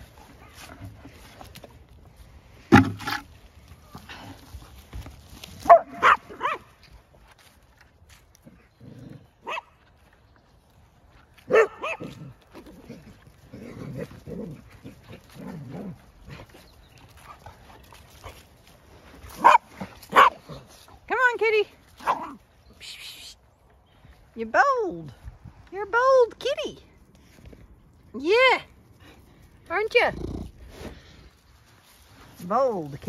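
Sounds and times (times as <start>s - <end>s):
dogs barking: 5.6s - 6.7s, 11.5s - 12.2s, 19.4s - 20.5s.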